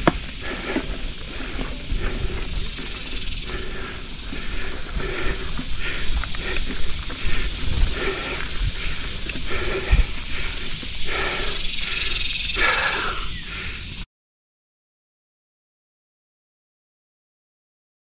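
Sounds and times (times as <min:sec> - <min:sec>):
low thumps from bike: 0:00.0 - 0:11.3
person breathing hard: 0:00.0 - 0:14.1.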